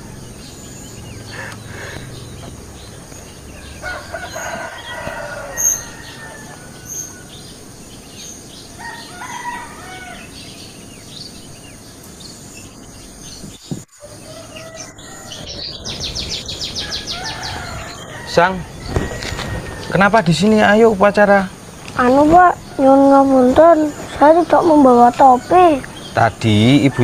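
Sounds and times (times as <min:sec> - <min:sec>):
short bird calls: 0:00.9 - 0:02.6
rooster crowing: 0:03.5 - 0:07.8, 0:08.8 - 0:10.6, 0:14.0 - 0:20.7.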